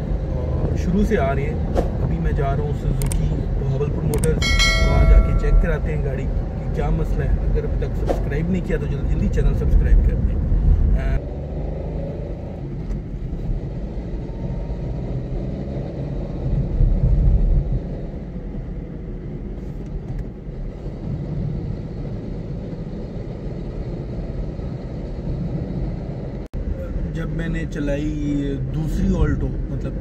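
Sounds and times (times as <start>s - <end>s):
car engine rumble inside cabin: 0.0s - 11.2s.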